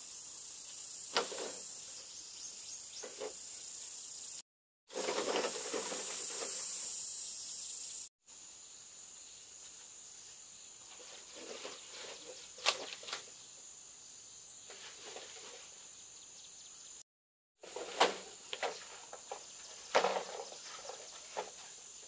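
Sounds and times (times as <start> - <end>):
insects droning: 0.0 - 17.0, 17.6 - 22.0
rustling and scraping undergrowth: 0.7 - 3.8, 4.9 - 7.3, 9.5 - 13.4, 14.6 - 16.0, 17.6 - 22.0.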